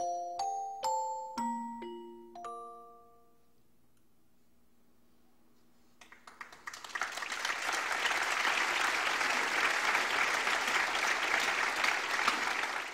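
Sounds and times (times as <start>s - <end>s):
audience applauding: 6.0s - 12.9s.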